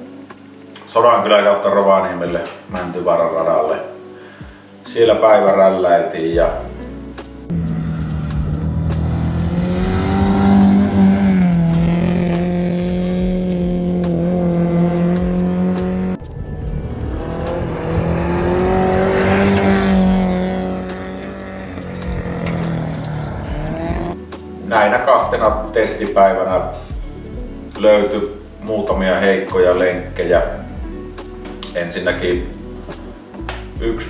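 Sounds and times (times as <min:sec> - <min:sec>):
car engine at high revs: 0:07.5 - 0:24.2.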